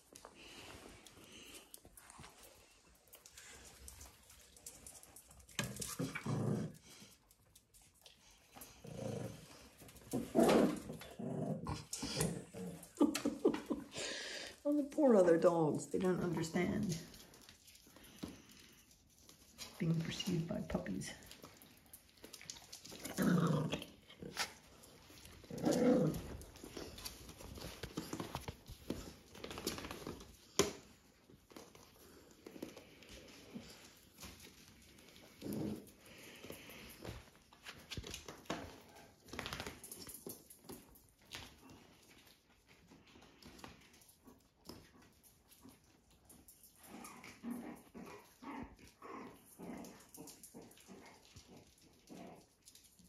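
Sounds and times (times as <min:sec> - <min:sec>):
dog growling: 0:05.6 - 0:07.2, 0:08.6 - 0:13.7, 0:22.8 - 0:27.8, 0:34.8 - 0:36.9, 0:46.8 - 0:52.8.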